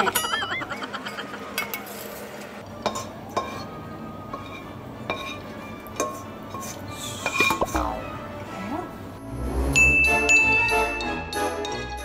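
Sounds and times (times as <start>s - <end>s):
background music: 2.6s - 12.0s
metal spatula clinking on pan: 4.3s - 7.7s.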